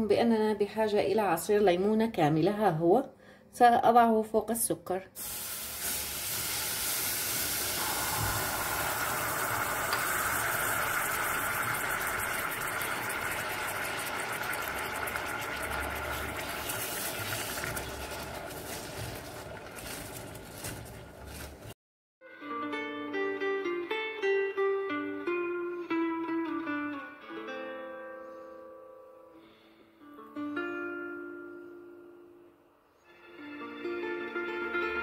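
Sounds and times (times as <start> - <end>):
sugar sizzling in a pot: 5.2 - 21.8
wooden spoon scraping a pot: 15.6 - 21.7.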